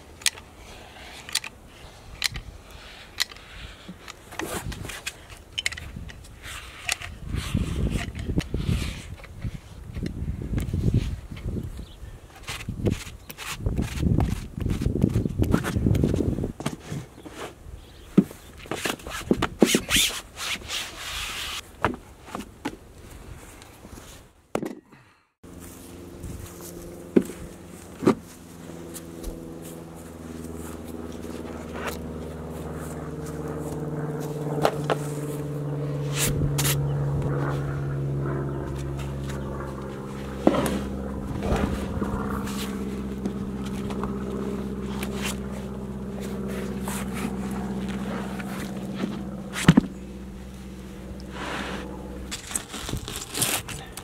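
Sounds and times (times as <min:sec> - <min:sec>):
engine drone: 0:25.4 - 0:54.0
rubber mats handled: 0:38.8 - 0:50.0, 0:51.3 - 0:54.0.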